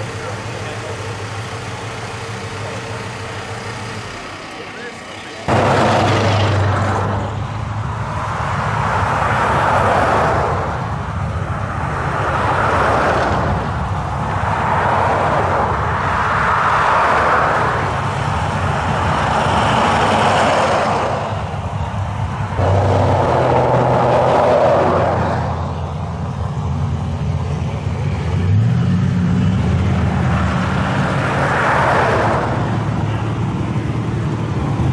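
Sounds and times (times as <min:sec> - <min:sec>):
engine idling rumble: 0:00.0 - 0:08.2
cars driving past: 0:00.0 - 0:34.9.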